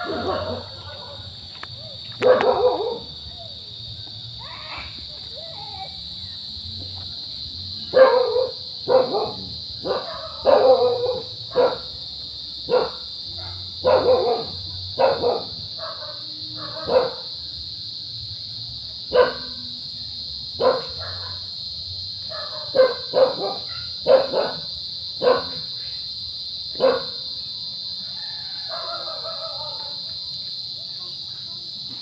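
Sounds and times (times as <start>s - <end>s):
dog barking: 0.0s - 1.4s, 2.2s - 3.2s, 7.9s - 12.0s, 12.7s - 17.3s, 19.1s - 19.6s, 20.6s - 21.5s, 22.2s - 25.8s, 26.7s - 27.3s, 28.7s - 30.0s.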